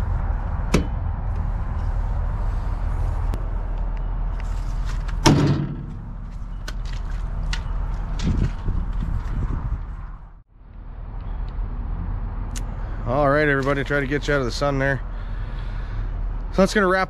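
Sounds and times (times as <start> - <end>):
steady low rumble: 0.0 - 17.0
metal door slamming: 5.2 - 6.2.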